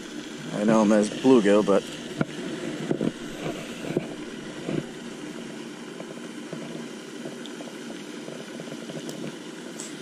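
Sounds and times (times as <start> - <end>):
machine hum and rush: 0.0 - 10.0.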